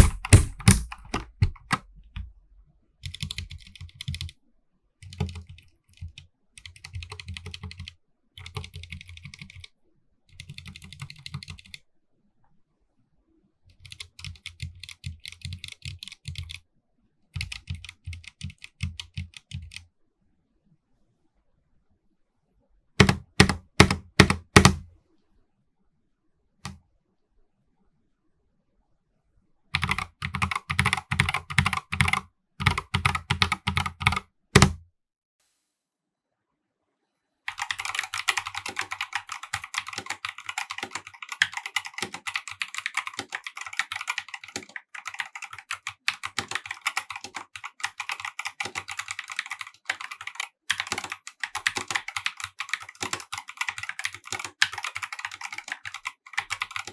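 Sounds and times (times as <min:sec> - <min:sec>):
mechanical keyboard typing: 0:00.0 - 0:02.3, 0:03.0 - 0:04.4, 0:05.0 - 0:09.7, 0:10.3 - 0:11.8, 0:13.7 - 0:16.6, 0:17.4 - 0:19.8, 0:23.0 - 0:24.8, 0:29.8 - 0:34.8, 0:37.5 - 0:56.9.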